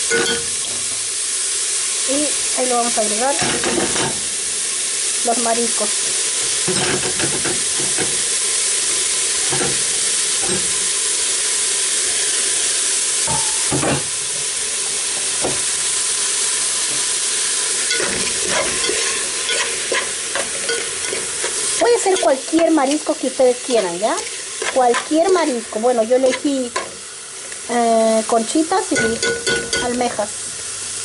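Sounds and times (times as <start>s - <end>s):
vegetables sizzling in oil: 0.0s - 31.0s
spoon stirring and scraping pot: 6.5s - 8.1s, 17.8s - 27.6s.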